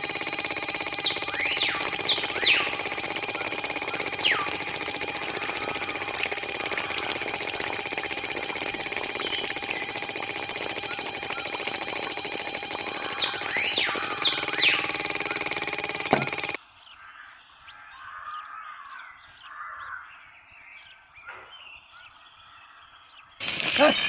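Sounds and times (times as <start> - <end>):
small electric motor whining: 0.0 - 16.6, 23.4 - 24.0
high whistled chirps: 0.3 - 12.2, 12.8 - 15.8.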